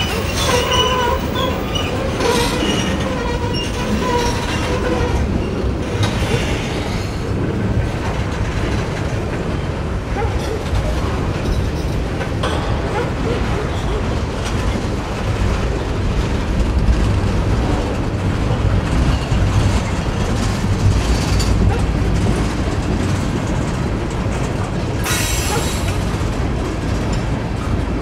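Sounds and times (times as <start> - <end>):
high-pitched wheel squealing: 0.0 - 5.6
train wheels rumbling on rails: 0.0 - 28.0.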